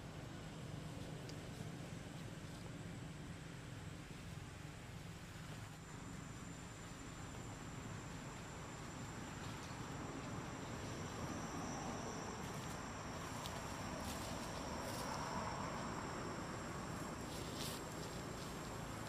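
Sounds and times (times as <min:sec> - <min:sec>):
insects calling: 0:04.8 - 0:19.0.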